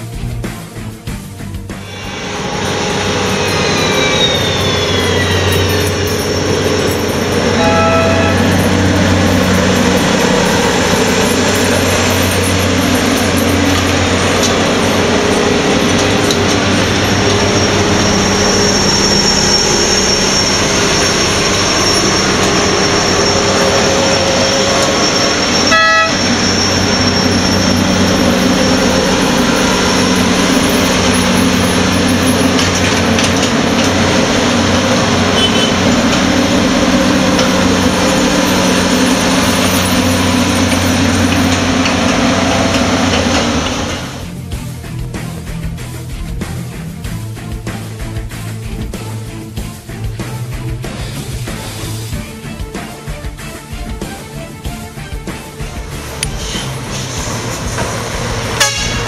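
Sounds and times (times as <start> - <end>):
diesel engines driving past: 1.7 - 44.6, 55.6 - 59.0
short horn toot: 7.6 - 8.5, 25.6 - 26.4, 35.3 - 35.9, 58.6 - 59.0.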